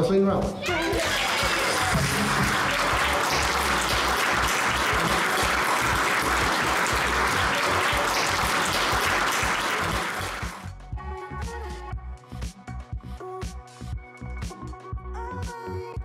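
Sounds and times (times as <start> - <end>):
audience applauding: 0.6 - 10.7.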